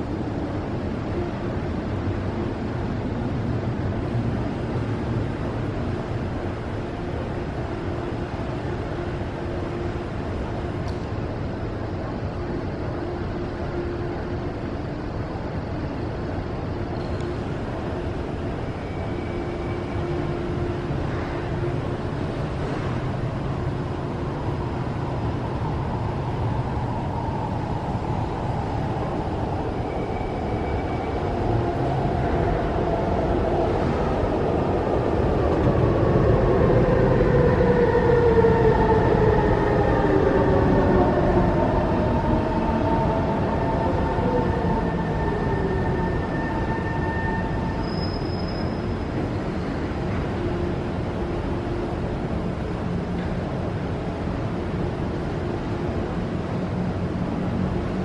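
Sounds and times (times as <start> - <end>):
metro train rumble: 0.0 - 58.0
train whine falling in pitch: 36.6 - 50.5.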